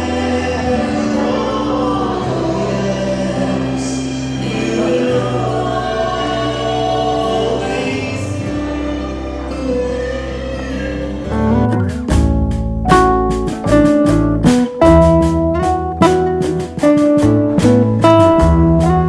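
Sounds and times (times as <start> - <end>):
choir singing long notes: 0.0 - 11.7
low accompaniment: 0.0 - 19.0.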